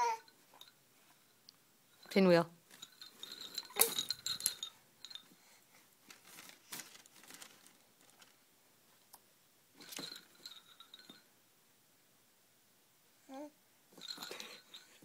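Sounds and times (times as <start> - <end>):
foil pinwheel rustling: 6.0 - 8.4.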